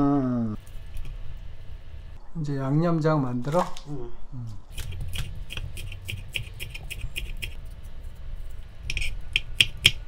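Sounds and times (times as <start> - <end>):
knife chopping on wooden board: 4.8 - 7.6, 8.9 - 10.0.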